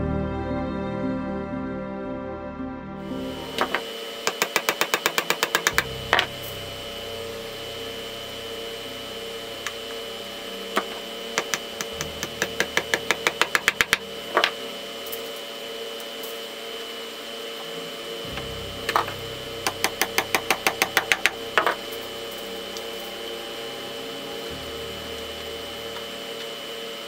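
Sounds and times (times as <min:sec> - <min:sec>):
small hammer tapping on wood: 0:03.6 - 0:06.3, 0:11.4 - 0:14.5.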